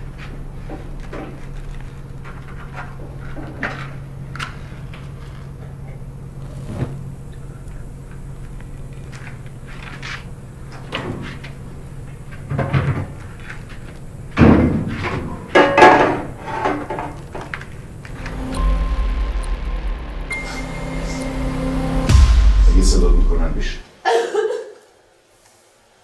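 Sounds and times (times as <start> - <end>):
low steady hum: 17.8 - 23.9.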